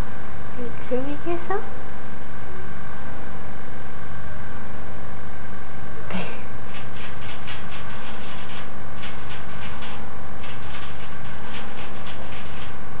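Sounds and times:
loud steady low hum: 0:00.0 - 0:13.0
rabbit licking ticks: 0:06.7 - 0:12.7.

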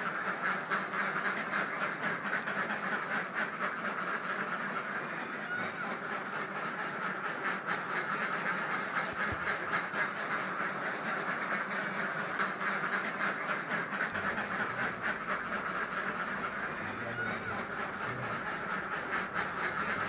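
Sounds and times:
ducks quacking: 0:00.0 - 0:20.0.

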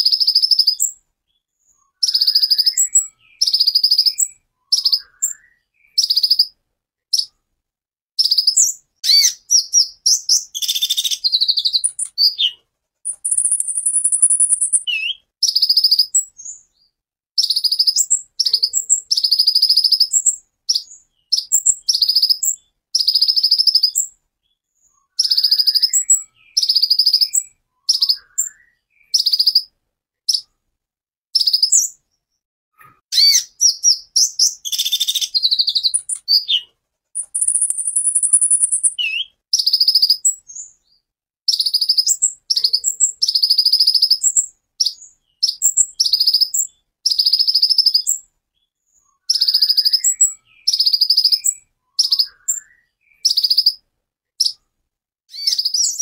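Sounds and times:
sunbird singing buzzy trills: 0:08.2 - 0:16.6, 0:33.2 - 0:40.7, 0:41.5 - 0:53.8.

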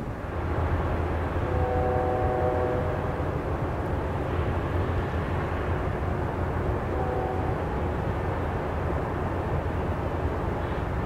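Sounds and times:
distant ship's horn blast: 0:01.4 - 0:03.2, 0:06.9 - 0:07.7.

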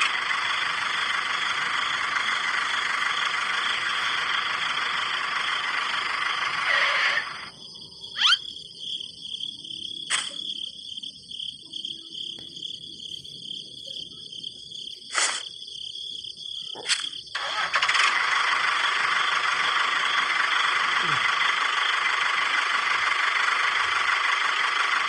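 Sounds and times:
motor running: 0:00.0 - 0:07.6, 0:17.4 - 0:25.0
high chirring: 0:00.0 - 0:08.7.

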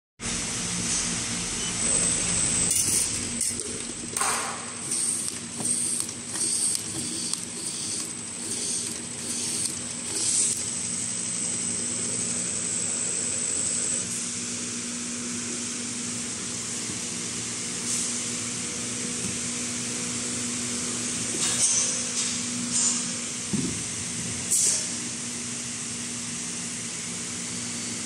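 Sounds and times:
high machine whine: 0:00.2 - 0:28.0
labeling machine hissing and humming: 0:00.2 - 0:28.0
bottles clicking on conveyor: 0:02.7 - 0:10.6.

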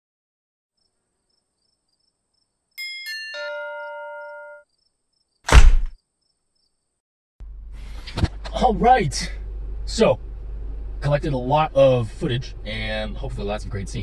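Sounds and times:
short loud noise burst: 0:05.5 - 0:06.0.

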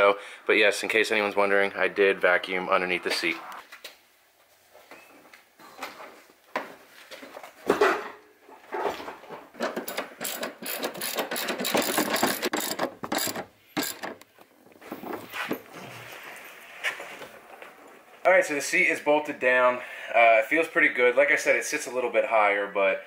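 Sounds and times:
socket ratchet clicking: 0:09.8 - 0:14.2.

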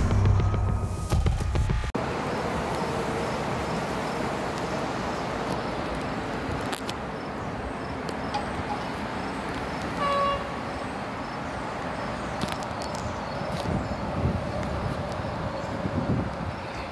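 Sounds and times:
outdoor background noise: 0:00.0 - 0:16.9
train horn toot: 0:10.0 - 0:10.6.

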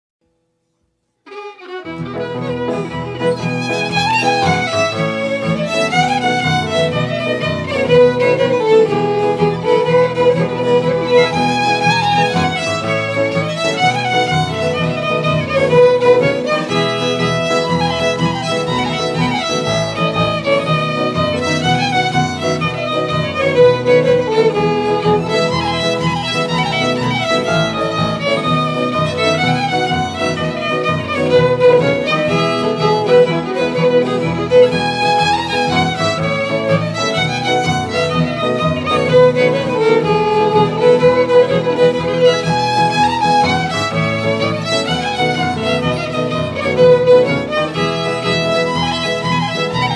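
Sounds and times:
bowed fiddle melody: 0:01.2 - 0:49.9
low accompaniment: 0:01.3 - 0:49.9.

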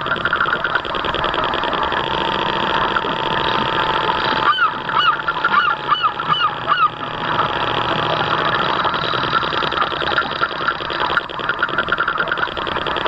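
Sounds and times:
model boat motor whine: 0:00.0 - 0:13.0
waterfowl honking: 0:04.4 - 0:07.4.

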